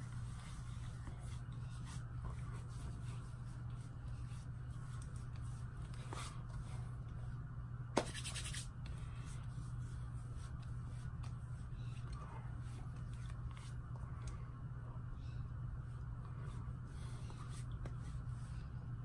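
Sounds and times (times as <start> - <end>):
steady low hum: 0.0 - 19.0
hands rubbing on face: 8.0 - 13.8.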